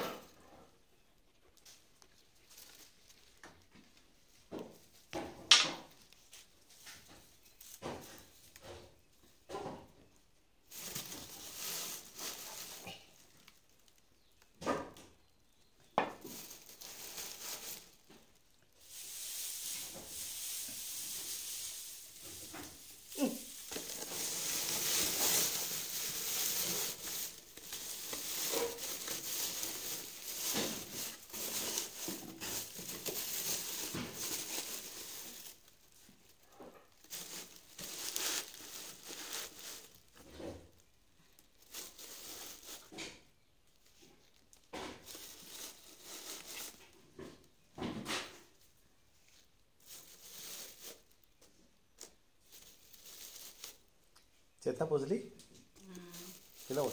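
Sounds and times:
dry straw rustling: 10.6s - 14.5s, 16.2s - 43.0s, 44.0s - 47.0s, 49.8s - 51.4s, 52.0s - 53.9s, 55.9s - 56.9s.

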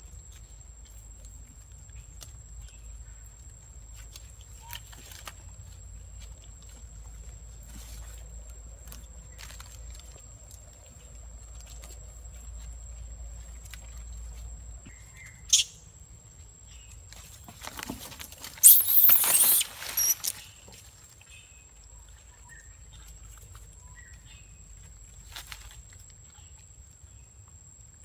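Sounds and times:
monkey high chirp: 15.5s - 15.8s, 18.6s - 20.3s
monkey noisy burst with squeaks: 18.6s - 20.4s.

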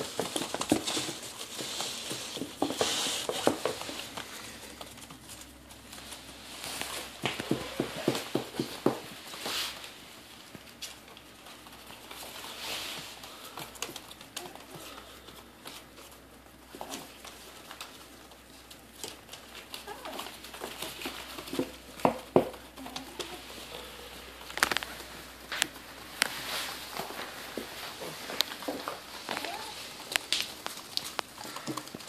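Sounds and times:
small paws pattering and scratching: 0.0s - 32.0s
paper crinkling: 22.6s - 32.0s.

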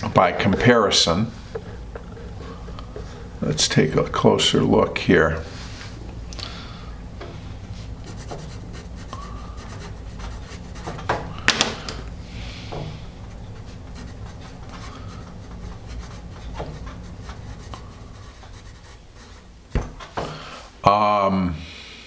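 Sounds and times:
pencil writing on paper: 8.0s - 11.2s, 13.2s - 19.4s.

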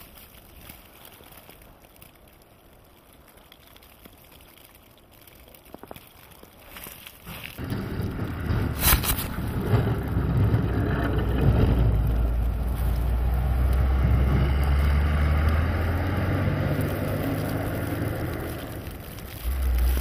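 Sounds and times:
plow blade pushing snow: 6.7s - 20.0s
diesel truck engine passing: 7.6s - 20.0s.

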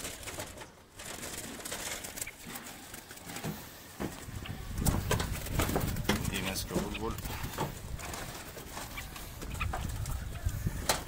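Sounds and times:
birds fluttering against wire mesh: 0.0s - 11.0s
low cooing bird calls: 8.7s - 11.0s.

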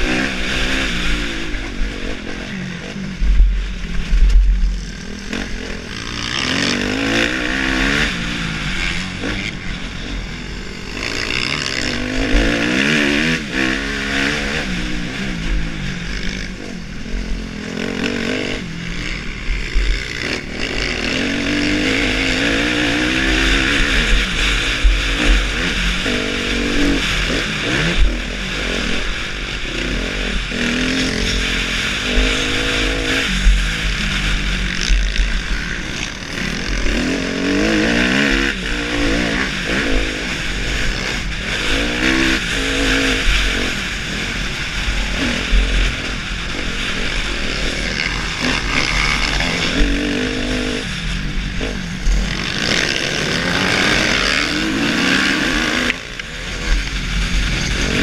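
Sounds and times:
motocross bike engine revving: 0.0s - 58.0s
wind rush on microphone: 11.6s - 58.0s.

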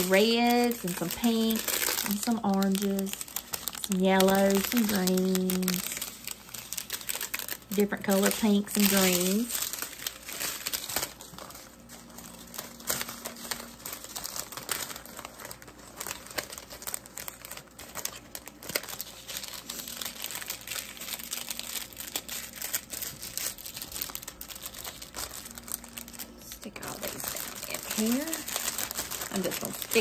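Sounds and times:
plastic packets crinkling: 0.0s - 30.0s.

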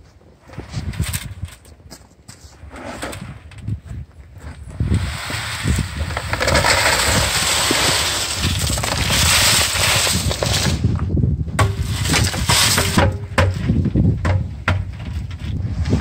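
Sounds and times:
concrete clumps dropping: 4.9s - 15.6s
wet concrete pouring: 5.0s - 10.8s.

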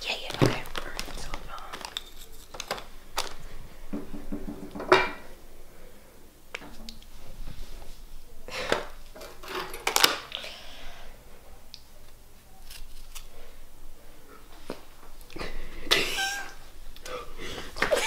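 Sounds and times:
knife scraping cookie filling: 1.7s - 2.8s.

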